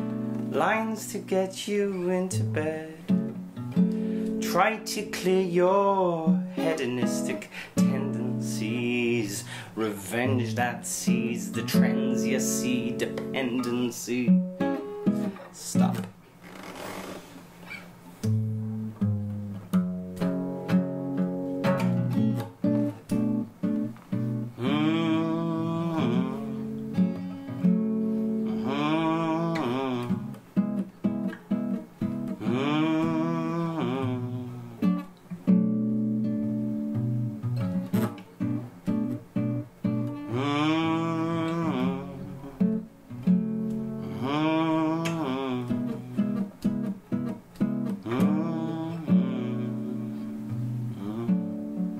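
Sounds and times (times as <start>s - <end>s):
acoustic guitar: 0.0s - 51.9s
wordless vocal line: 4.4s - 14.4s, 24.5s - 27.1s, 28.4s - 30.4s, 32.3s - 35.0s, 40.2s - 42.8s, 44.0s - 46.5s, 48.0s - 51.9s.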